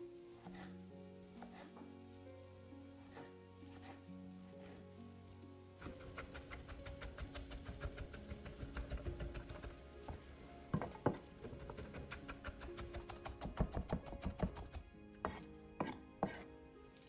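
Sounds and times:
knife chopping on wooden board: 0:10.7 - 0:16.4.

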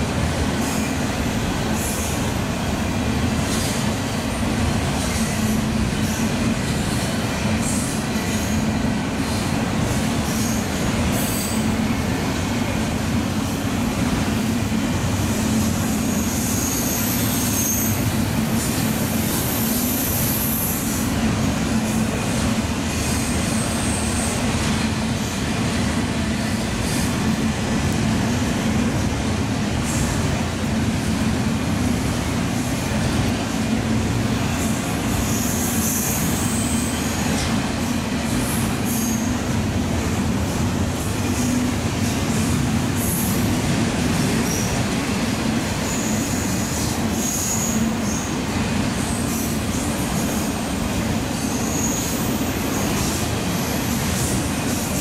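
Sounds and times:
train wheels rumbling on rail: 0:00.0 - 0:55.0
high-pitched wheel squeals: 0:16.0 - 0:18.0.

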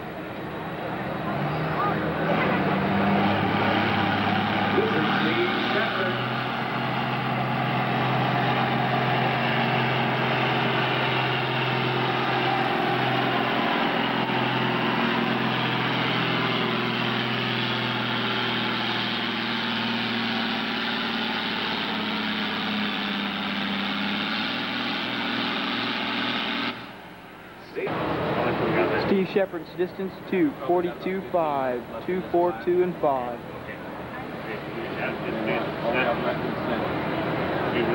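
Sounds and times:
tractor diesel engine under load: 0:00.0 - 0:37.9.

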